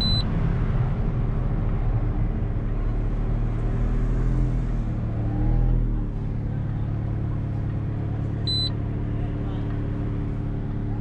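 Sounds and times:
turbo car engine running: 0:04.8 - 0:11.0.

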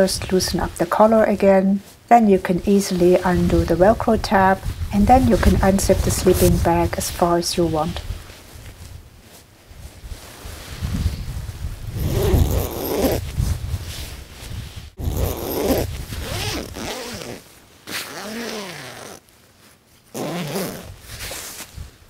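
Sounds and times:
sleeping bag zipper unzipping: 0:11.9 - 0:13.4, 0:15.0 - 0:19.2, 0:20.1 - 0:21.5.

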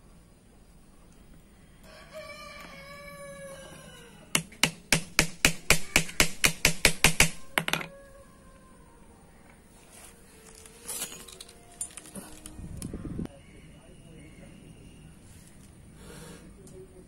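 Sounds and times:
hammer tapping metal rivet punch: 0:04.4 - 0:07.9.

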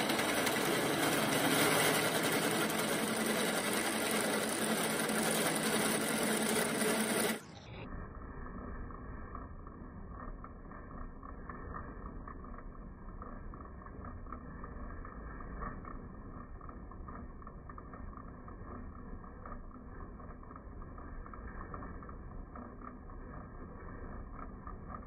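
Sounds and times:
drill press boring through steel: 0:00.0 - 0:07.6.

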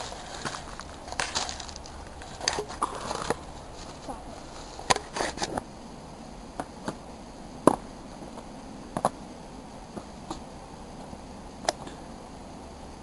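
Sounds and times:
footsteps on dry leaves and rocks: 0:00.0 - 0:05.6
steady outdoor hiss: 0:00.0 - 0:13.0.

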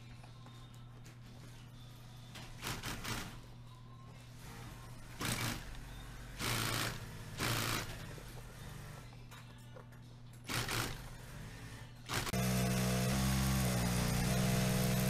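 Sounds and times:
sewing machine stitching: 0:04.4 - 0:05.8, 0:06.4 - 0:09.0, 0:10.5 - 0:15.0.

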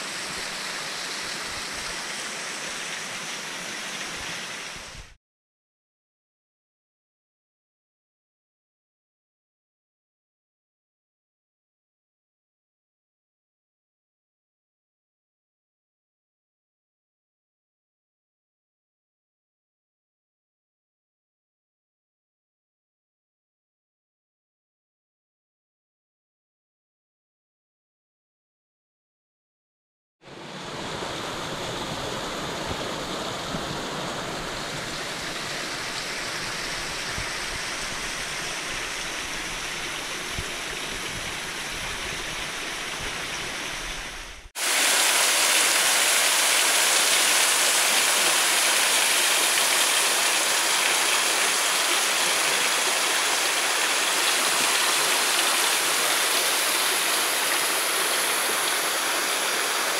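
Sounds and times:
mountain stream rushing: 0:00.0 - 0:05.2, 0:30.3 - 0:59.9.

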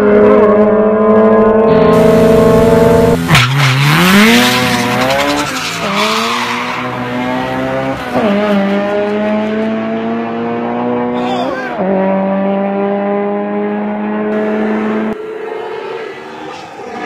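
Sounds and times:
car engine revving: 0:00.0 - 0:17.0
tires squealing: 0:01.7 - 0:09.7, 0:14.3 - 0:17.0.

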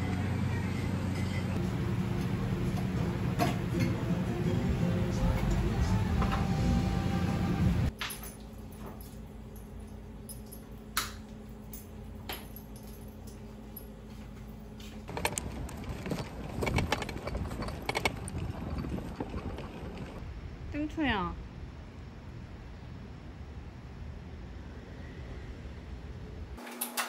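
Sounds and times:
low steady hum: 0:00.0 - 0:26.6
small clicks and rattles: 0:15.1 - 0:20.2.

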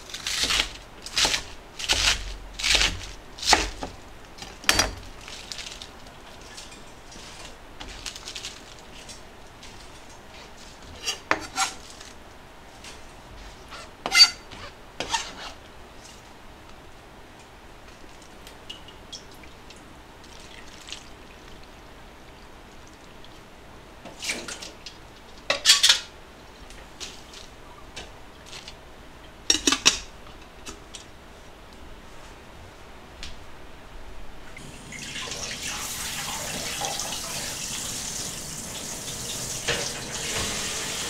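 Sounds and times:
knife on plastic cutting board: 0:13.7 - 0:15.6.

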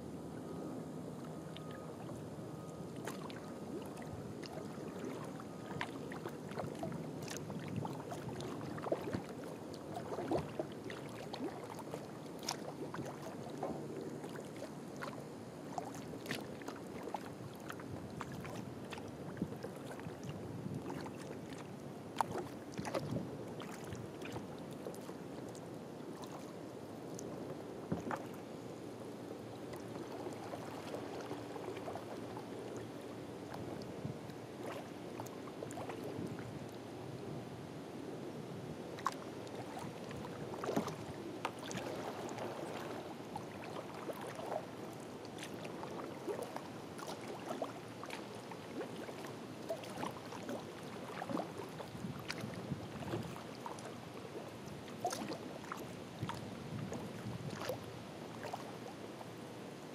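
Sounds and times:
water washing along kayak hull: 0:01.2 - 0:37.5, 0:38.1 - 0:59.9
water drips and splashes: 0:45.3 - 0:53.9, 0:54.9 - 0:57.8.

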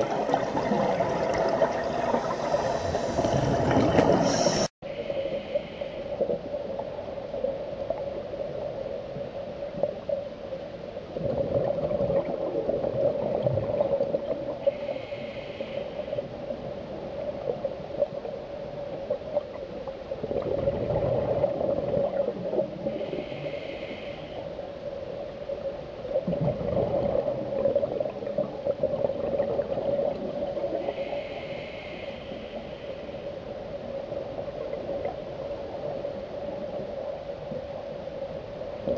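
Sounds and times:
muffled bubble surges: 0:00.0 - 0:04.7, 0:20.2 - 0:23.0, 0:26.2 - 0:30.7
steady underwater drone: 0:00.0 - 0:38.9.

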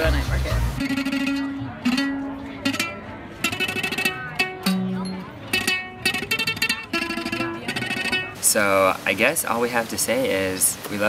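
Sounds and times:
plucked floor zither music: 0:00.0 - 0:08.4.

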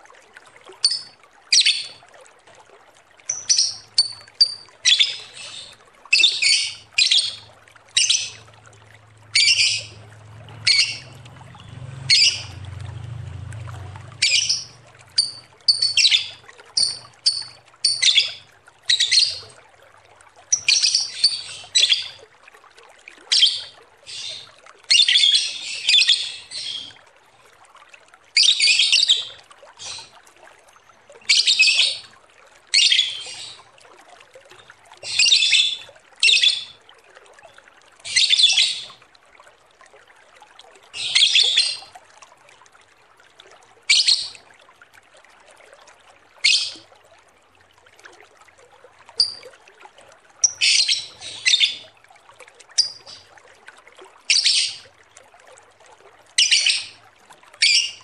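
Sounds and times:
lovebird chattering song: 0:00.8 - 0:02.0, 0:03.3 - 0:07.4, 0:08.0 - 0:08.4, 0:09.4 - 0:09.9, 0:10.6 - 0:11.1, 0:12.1 - 0:12.5, 0:14.2 - 0:19.5, 0:20.5 - 0:22.2, 0:35.0 - 0:36.7, 0:49.2 - 0:49.4, 0:50.4 - 0:51.8, 0:54.3 - 0:54.8, 0:56.4 - 0:56.9.

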